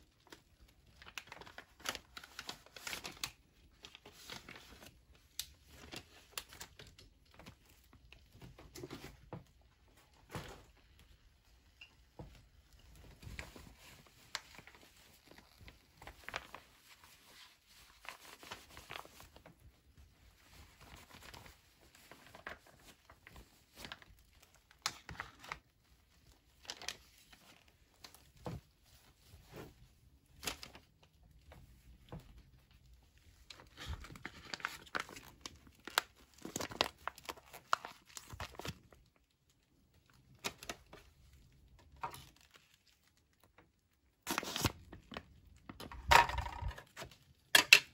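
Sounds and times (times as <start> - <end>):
plastic and foil pouches crinkling: 0.0 - 47.9
pouch tearing: 44.2 - 44.9.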